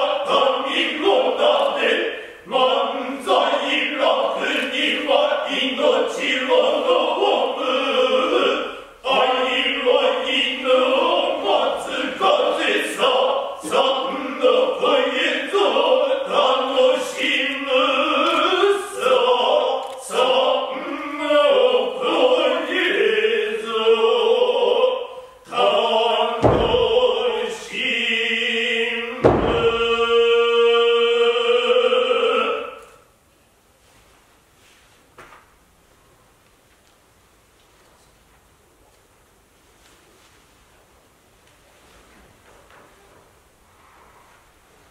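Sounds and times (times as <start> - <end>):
men chanting in unison: 0.0 - 32.8
heavy thumps: 26.4 - 27.3, 29.2 - 30.0.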